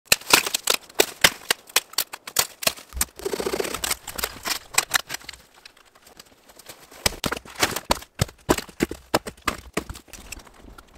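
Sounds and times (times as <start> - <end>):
hatchet chopping branches: 0.1 - 5.3, 7.0 - 10.3
brush rustling: 0.1 - 7.8.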